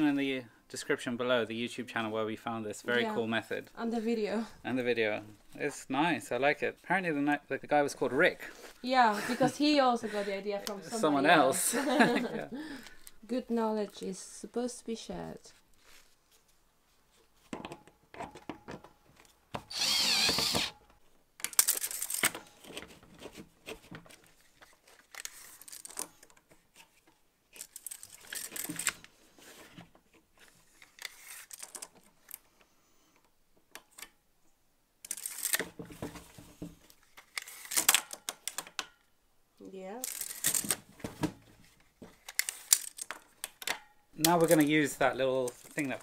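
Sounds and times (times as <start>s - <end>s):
power drill whining: 19.6s - 20.8s.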